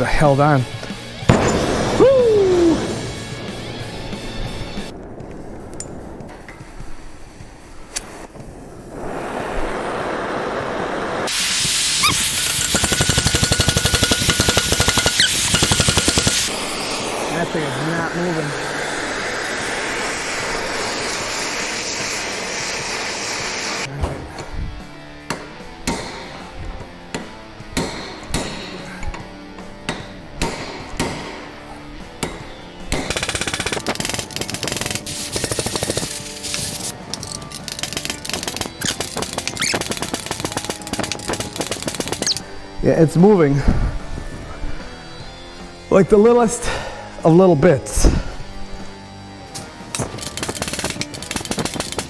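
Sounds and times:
loud rushing hiss: 0:00.4 - 0:23.9, 0:33.0 - 0:49.2
torch hissing: 0:01.4 - 0:23.9, 0:33.1 - 0:43.0
hammer striking steel punch: 0:12.1 - 0:16.4, 0:25.3 - 0:26.4, 0:27.1 - 0:28.9, 0:29.8 - 0:31.5
rapid power hammering: 0:12.1 - 0:17.3, 0:32.2 - 0:42.4, 0:49.9 - 0:52.0
faint music: 0:23.9 - 0:52.0.

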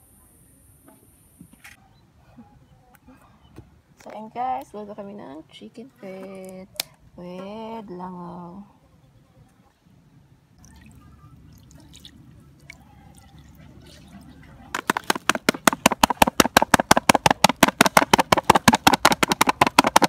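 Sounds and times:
fast even knocking: 0:14.7 - 0:20.0.

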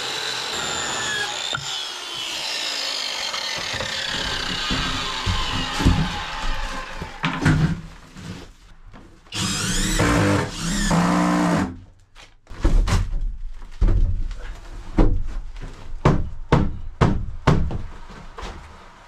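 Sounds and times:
power drill driving screws: 0:00.0 - 0:07.2, 0:09.4 - 0:11.7.

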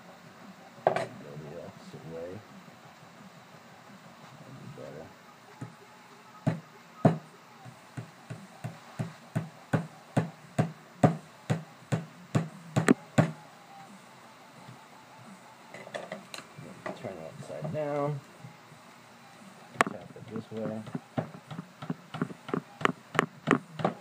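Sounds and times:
hammer tapping: 0:08.0 - 0:13.4, 0:19.8 - 0:24.0.

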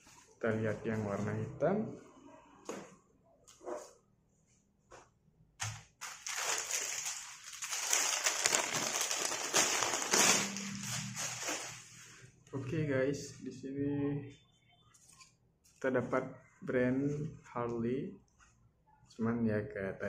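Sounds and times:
plastic bag crinkling: 0:06.0 - 0:11.9.

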